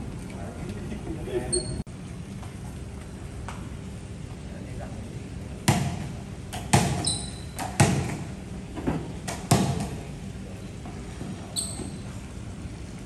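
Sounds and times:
short high squeaks: 0:01.5 - 0:01.8, 0:07.0 - 0:07.6, 0:11.5 - 0:12.2
ball bouncing on tiled floor: 0:05.7 - 0:08.2, 0:08.8 - 0:10.0.

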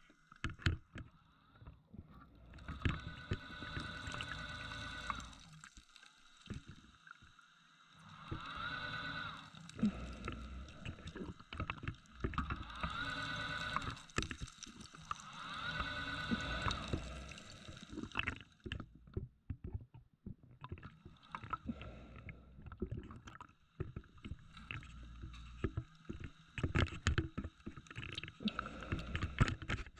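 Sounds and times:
diver exhaling bubbles underwater: 0:08.1 - 0:18.8, 0:20.8 - 0:29.9.

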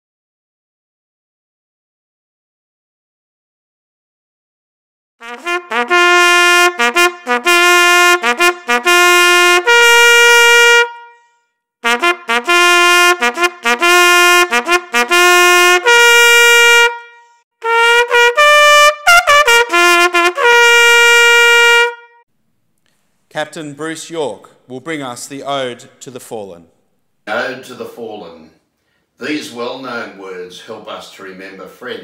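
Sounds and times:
solo trumpet bugle call: 0:05.2 - 0:22.2.

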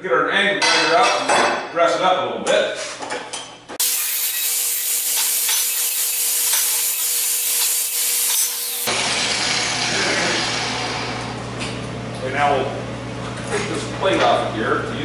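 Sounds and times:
angle grinder grinding steel: 0:03.8 - 0:11.4.

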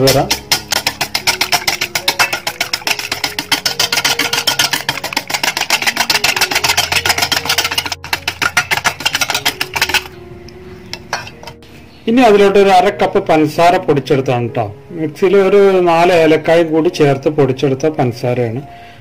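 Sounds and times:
utensil clinking on metal bowl: 0:00.0 - 0:10.2, 0:10.9 - 0:11.6.

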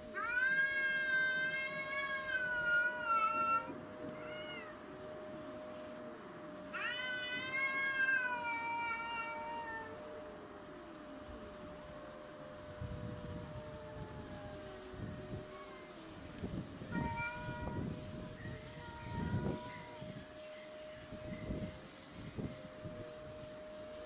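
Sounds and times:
cat yowling: 0:00.2 - 0:04.8, 0:06.8 - 0:10.0, 0:16.8 - 0:17.9.

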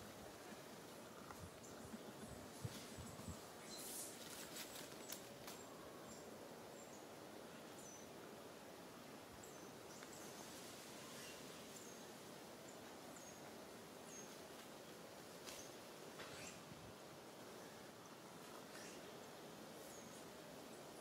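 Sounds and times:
faint steady hiss: 0:00.0 - 0:21.0
soft clicks and rustles: 0:01.2 - 0:05.7.

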